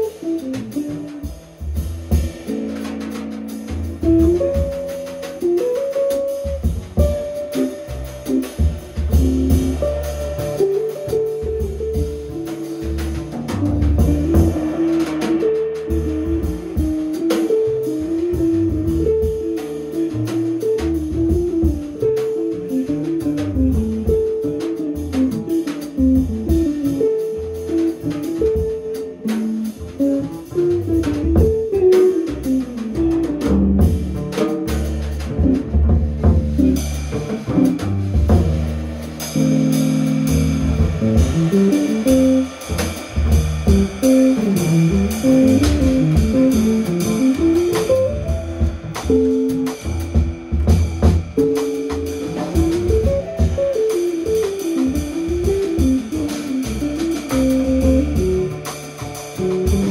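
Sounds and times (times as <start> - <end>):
cymbal and drum strokes: 0.0 - 59.9
double bass notes: 0.0 - 59.9
jazz guitar melody: 0.0 - 59.9.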